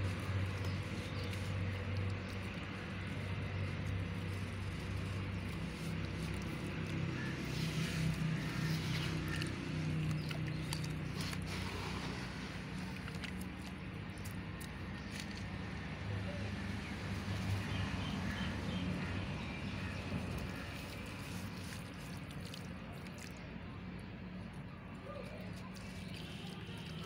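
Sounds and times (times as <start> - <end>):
gritty crackles: 0.0 - 23.4
soft water splashing: 0.0 - 24.2, 24.9 - 27.0
low motor hum: 0.0 - 27.0.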